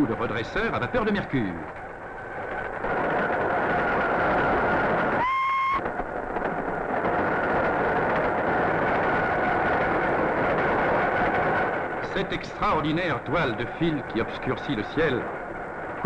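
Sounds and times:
electric locomotive rumbling: 0:00.0 - 0:16.0
train whistle blast: 0:05.2 - 0:05.8
faint high whine: 0:09.1 - 0:16.0.

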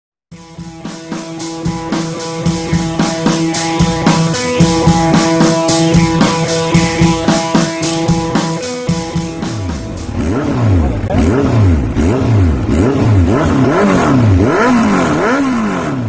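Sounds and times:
rock music with drums and guitar: 0:00.3 - 0:11.1.

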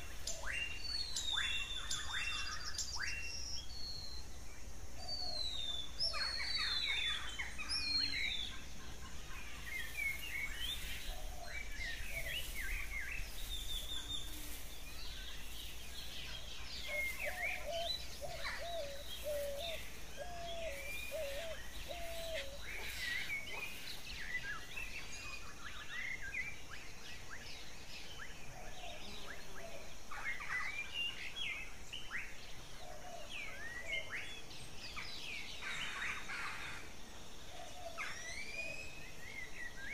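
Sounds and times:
birds chirping: 0:00.0 - 0:39.9
steady hiss: 0:03.2 - 0:28.1.

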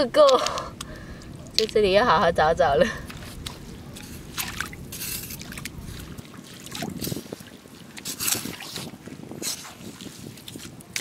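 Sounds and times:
water splashes: 0:02.8 - 0:11.0.

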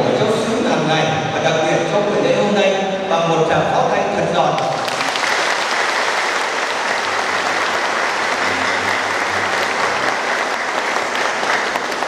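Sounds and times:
crowd applauding: 0:04.6 - 0:12.0.

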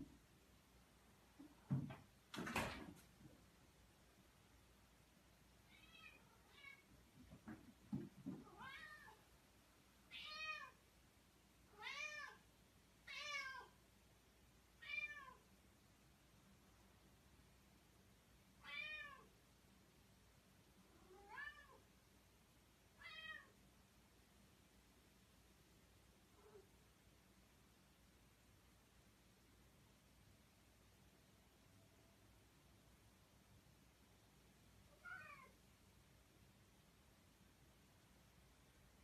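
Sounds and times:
cat meowing: 0:05.7 - 0:06.9, 0:08.4 - 0:09.2, 0:10.1 - 0:10.8, 0:11.7 - 0:12.4, 0:13.1 - 0:13.7, 0:14.8 - 0:15.4, 0:18.6 - 0:19.3, 0:21.0 - 0:21.8, 0:23.0 - 0:23.6, 0:34.9 - 0:35.6.

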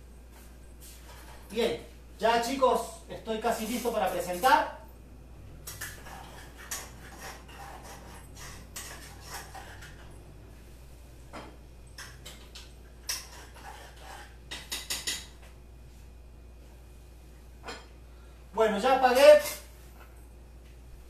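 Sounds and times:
pots and pans clattering: 0:11.3 - 0:15.4.

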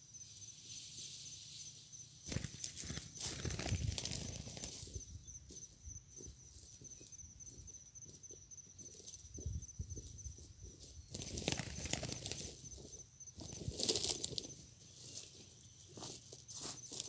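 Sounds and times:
bird rustling in dry leaves: 0:00.3 - 0:05.0, 0:11.1 - 0:12.8, 0:13.4 - 0:17.0
wings flapping: 0:02.2 - 0:05.0, 0:11.1 - 0:12.7.

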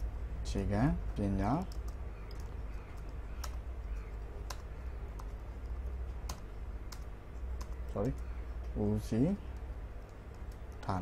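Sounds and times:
steady low hum: 0:00.0 - 0:11.0
keyboard keys clicking: 0:01.3 - 0:11.0.

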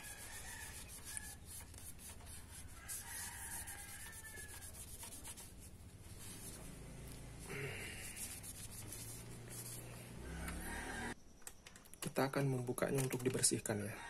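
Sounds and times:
pad rubbing on metal: 0:00.0 - 0:06.7, 0:08.0 - 0:10.6.

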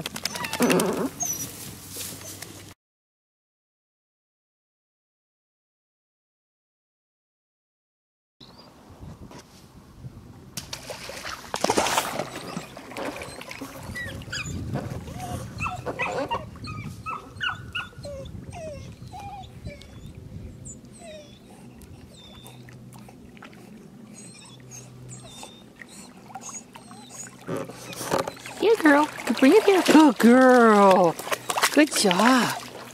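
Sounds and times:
puppy whining: 0:00.1 - 0:01.5, 0:12.3 - 0:23.2, 0:24.1 - 0:29.1
water splashing: 0:10.6 - 0:16.3, 0:21.8 - 0:32.9.

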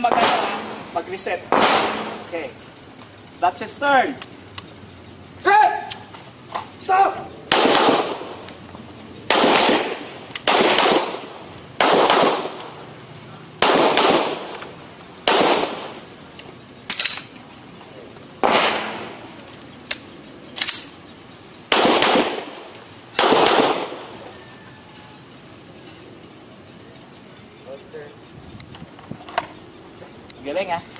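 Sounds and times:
pistol shots: 0:00.0 - 0:02.5, 0:07.5 - 0:08.5, 0:09.3 - 0:12.8, 0:13.6 - 0:16.0, 0:18.4 - 0:19.3, 0:21.7 - 0:24.2.

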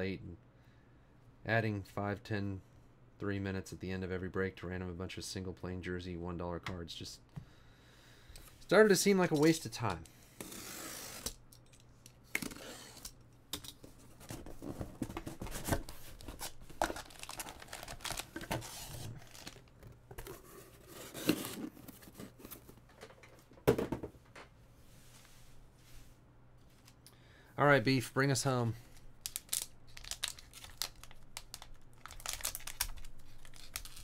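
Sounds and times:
card packs rustling and clicking: 0:13.8 - 0:23.5, 0:29.2 - 0:34.0
cardboard tearing: 0:14.6 - 0:19.6, 0:20.2 - 0:22.5.

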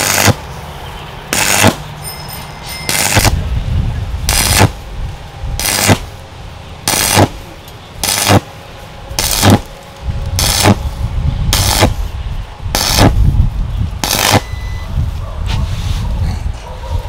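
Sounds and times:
welding arc sizzling: 0:00.0 - 0:00.5, 0:01.3 - 0:02.0, 0:02.9 - 0:14.6
steady low hum: 0:00.0 - 0:17.0.

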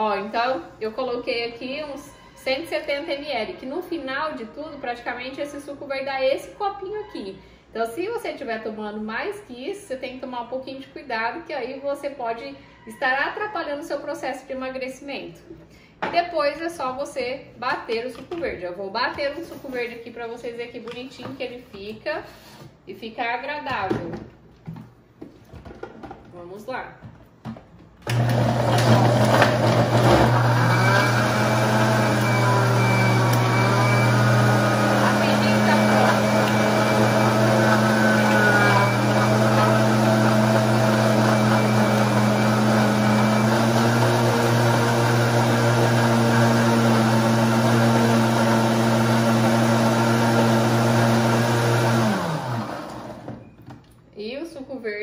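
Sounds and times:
blender running: 0:28.0 - 0:53.4.

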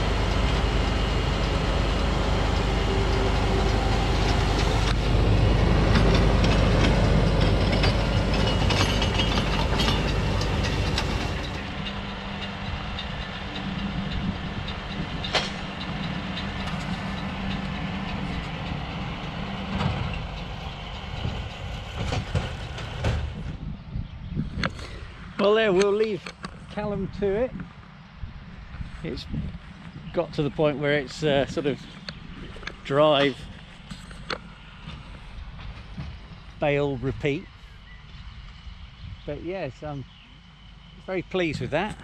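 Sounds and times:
tractor engine running: 0:00.0 - 0:42.0
baler machinery clicks: 0:00.2 - 0:23.2.

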